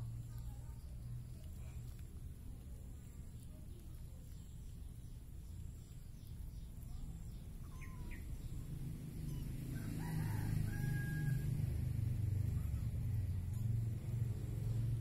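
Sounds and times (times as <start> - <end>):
rooster crowing: 9.7 - 11.8.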